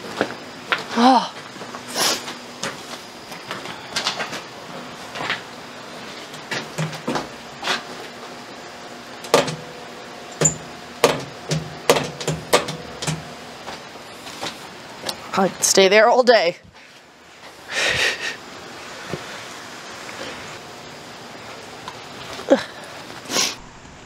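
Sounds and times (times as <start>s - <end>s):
footsteps in concrete passage: 0.0s - 8.3s
control panel buttons clicking: 10.4s - 13.3s.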